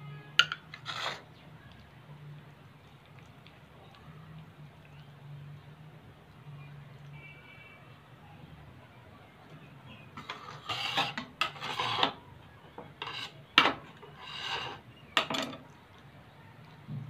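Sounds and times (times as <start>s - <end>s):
knife scraping stone countertop: 0.4s - 1.3s, 10.2s - 12.2s, 12.8s - 15.6s.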